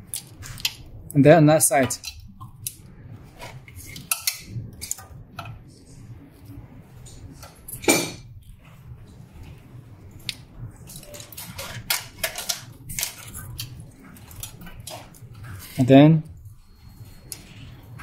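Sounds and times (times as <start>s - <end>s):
cable rustling: 8.4s - 18.0s.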